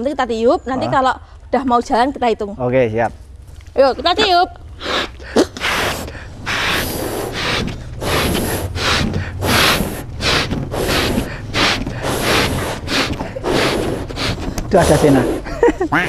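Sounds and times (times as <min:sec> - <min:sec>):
puffs blowing up balloons: 0:04.2 - 0:16.0
sharp gasping inhales: 0:04.7 - 0:15.5.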